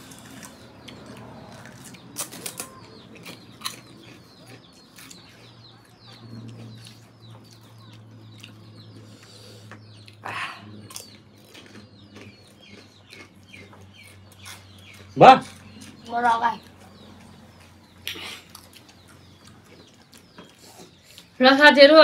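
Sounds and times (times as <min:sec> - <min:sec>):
crisp food crunching: 0:00.0 - 0:09.0, 0:10.8 - 0:16.0
small birds chirping: 0:00.0 - 0:22.0.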